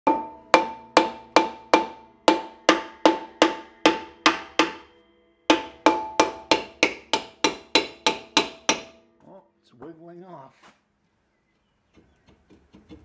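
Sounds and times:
hammer striking metal drum: 0.0 - 9.2.

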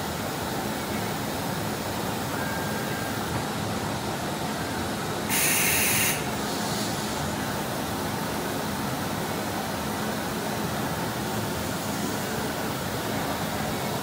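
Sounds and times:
compressed air hiss: 5.3 - 7.4.

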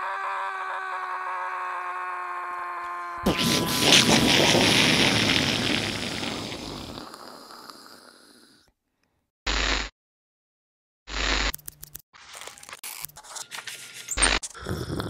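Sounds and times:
cartoon explosion blast: 3.2 - 7.0.

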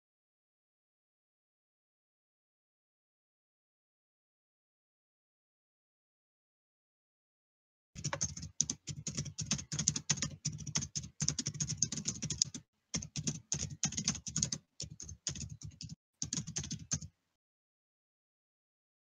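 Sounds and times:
computer keyboard typing: 8.0 - 17.2.

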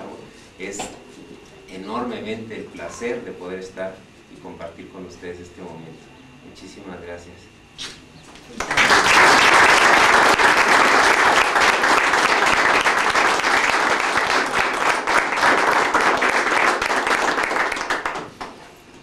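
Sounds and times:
group of people applauding: 8.5 - 18.7.

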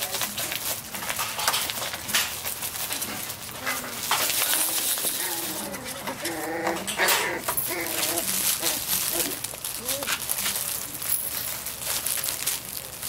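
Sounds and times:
knocks and scuffling: 0.0 - 13.0
puppies whining and growling: 3.0 - 10.4.

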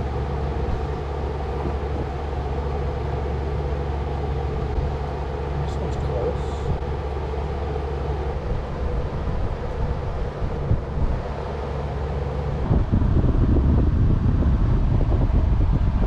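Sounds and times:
low mechanical hum: 0.0 - 16.0
wind buffeting microphone: 6.5 - 16.0.

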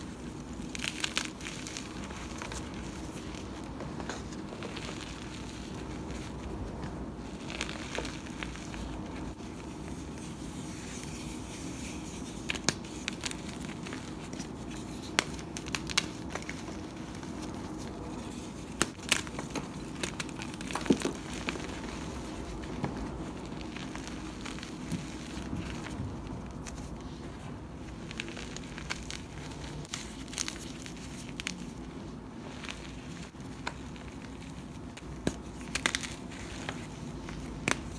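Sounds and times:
sharp cracks and snaps: 12.4 - 26.9, 32.5 - 37.9.

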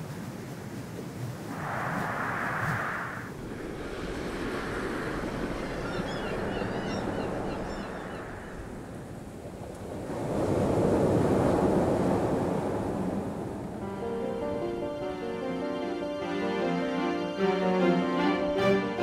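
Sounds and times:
waves washing onto beach: 0.0 - 14.9.

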